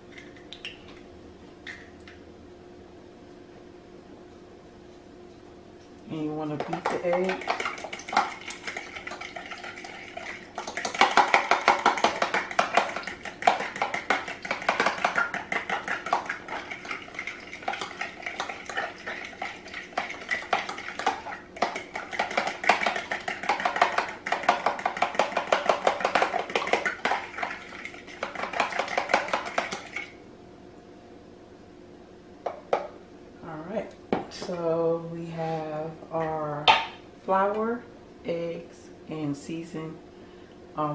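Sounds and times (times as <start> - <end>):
fork beating eggs in container: 6.5 - 30.2.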